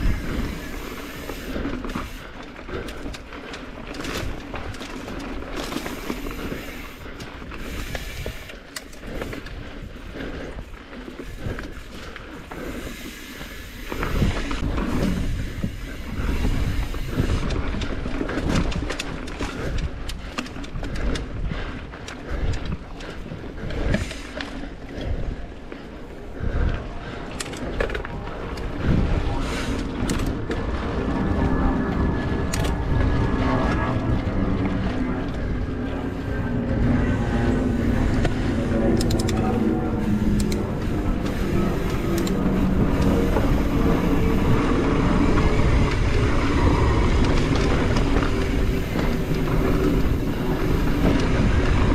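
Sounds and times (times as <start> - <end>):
wind on microphone: 0.0 - 3.3, 13.8 - 51.9
bike rattling and clicking: 0.0 - 51.9
rattle of clicks: 29.6 - 30.6, 38.9 - 44.3.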